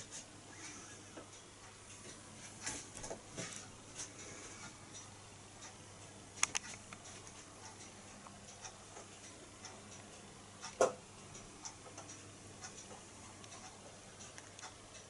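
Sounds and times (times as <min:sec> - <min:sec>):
sharp clicks: 0:06.4 - 0:09.4.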